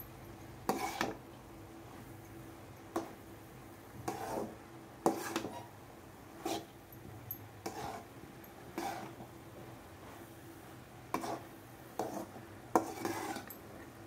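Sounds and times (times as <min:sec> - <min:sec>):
faint steady hum: 0:00.0 - 0:14.0
spatula scraping a pan: 0:00.7 - 0:01.2, 0:04.0 - 0:05.7, 0:06.4 - 0:06.7, 0:07.6 - 0:08.1, 0:08.8 - 0:09.2, 0:11.1 - 0:13.5.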